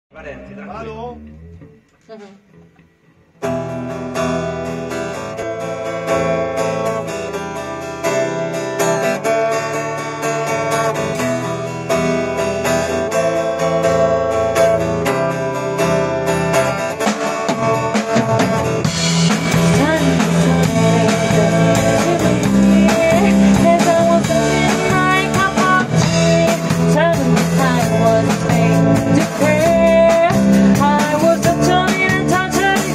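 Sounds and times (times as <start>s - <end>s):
acoustic guitars strumming: 0.1s - 32.9s
drums: 0.1s - 32.9s
electric guitar: 0.1s - 32.9s
woman singing: 19.6s - 32.9s.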